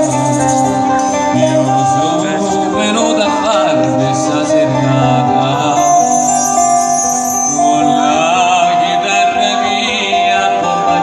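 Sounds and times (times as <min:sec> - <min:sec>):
man singing: 0:00.0 - 0:06.9, 0:07.6 - 0:11.0.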